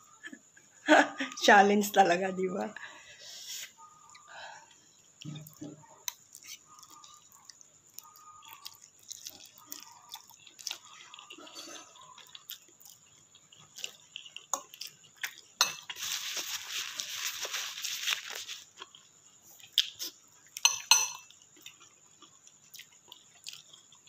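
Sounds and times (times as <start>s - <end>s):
wet chewing with mouth smacks: 4.1s - 20.6s, 21.5s - 24.0s.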